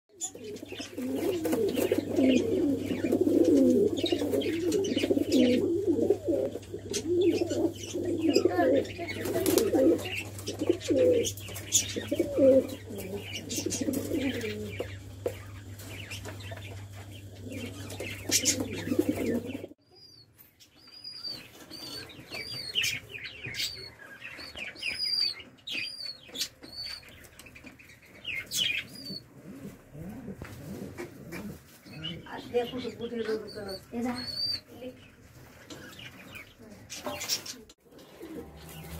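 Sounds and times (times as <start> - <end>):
pigeons cooing: 0.1 - 19.8, 28.2 - 34.8, 37.1 - 38.9
steady low hum: 0.3 - 19.8.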